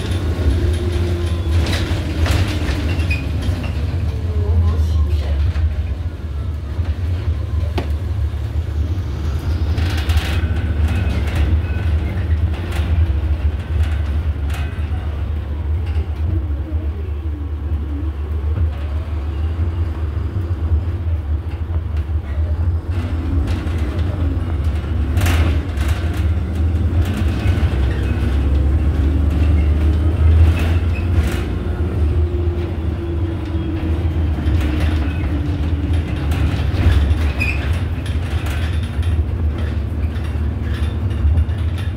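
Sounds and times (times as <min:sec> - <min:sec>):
knocks and rattles: 0:00.0 - 0:04.2, 0:09.7 - 0:15.2, 0:22.9 - 0:41.9
bus engine and road rumble: 0:00.0 - 0:41.9.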